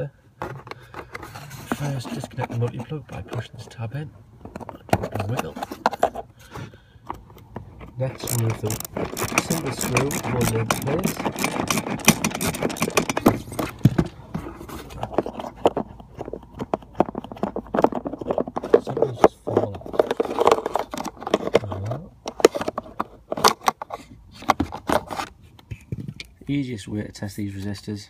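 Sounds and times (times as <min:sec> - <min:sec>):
plastic clicks and scrapes: 0:00.4 - 0:03.8, 0:04.4 - 0:26.3
screwdriver turning a screw: 0:07.7 - 0:14.0.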